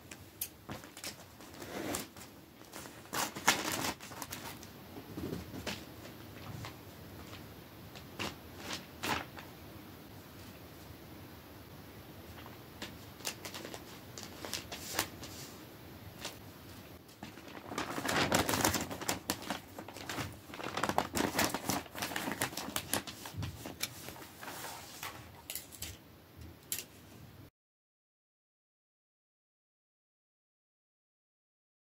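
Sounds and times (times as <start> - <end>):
wrapping paper crinkling: 0.7 - 4.7, 5.5 - 9.5, 12.3 - 15.6, 17.0 - 25.8.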